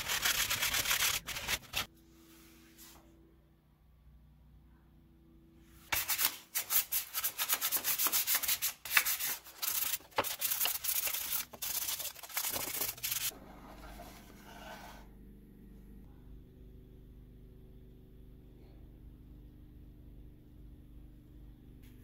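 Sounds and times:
sandpaper rubbing wood: 0.0s - 1.9s, 5.9s - 13.3s.

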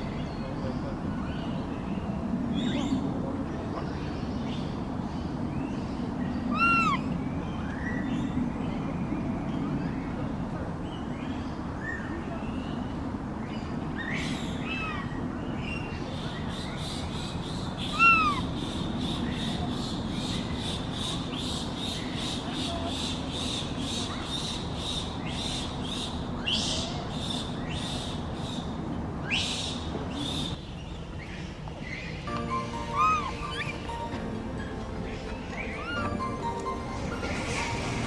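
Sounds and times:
low background noise: 0.0s - 38.0s
monkey coo calls: 6.5s - 7.2s, 17.8s - 18.6s, 32.7s - 34.1s, 35.5s - 36.2s
rhythmic high chirping: 32.3s - 38.0s.

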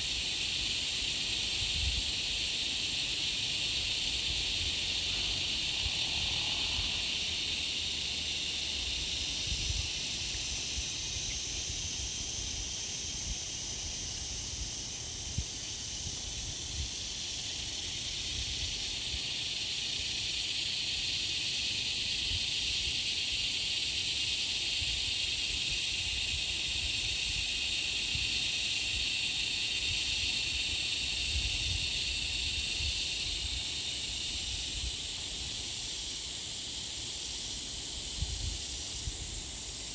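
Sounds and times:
insects buzzing: 0.0s - 39.9s
pulsing insect calls: 0.0s - 39.9s.

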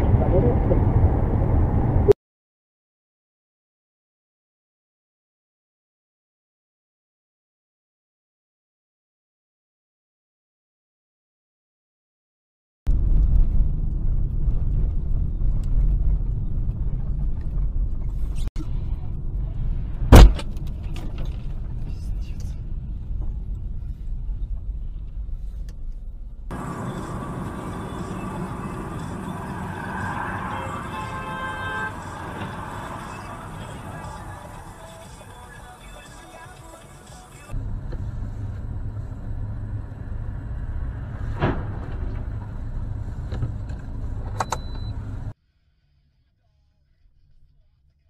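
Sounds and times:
hissy road and traffic noise: 0.0s - 2.2s, 12.9s - 45.4s
car tyre and engine rumble: 12.9s - 45.4s.

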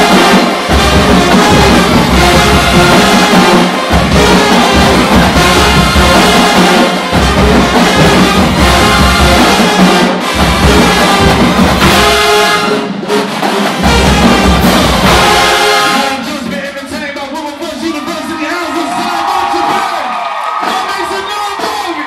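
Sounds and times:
brass section playing: 0.0s - 17.6s
snare and bass drums: 0.0s - 17.8s, 18.9s - 22.0s.

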